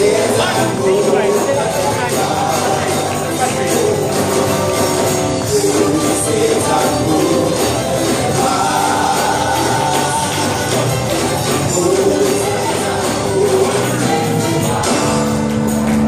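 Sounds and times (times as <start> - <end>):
church worship music: 0.0 - 16.0
people singing: 0.0 - 16.0.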